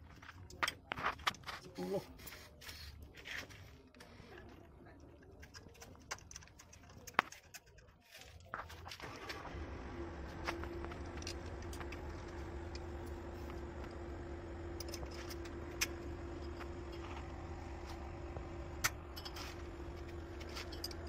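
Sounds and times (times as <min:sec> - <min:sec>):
low steady hum: 0:09.0 - 0:21.0
metallic clicks of connectors: 0:18.8 - 0:21.0.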